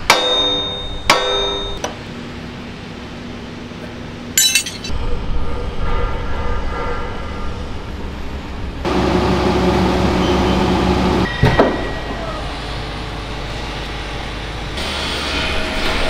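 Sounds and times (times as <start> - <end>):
metal tools clattering: 4.4 - 4.9.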